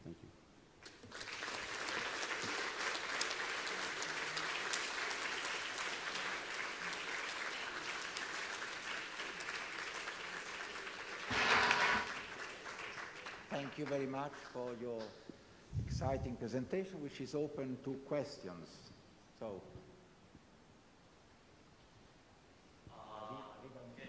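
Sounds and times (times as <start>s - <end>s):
audience applauding: 0.8s - 14.1s.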